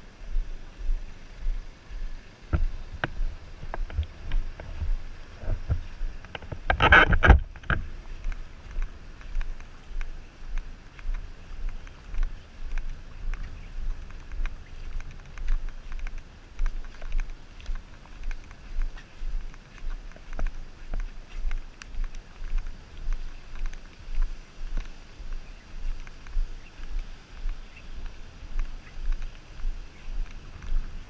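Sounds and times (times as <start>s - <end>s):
footsteps on wet pavement: 0.0s - 31.0s
camera jostling thumps: 2.5s - 10.0s.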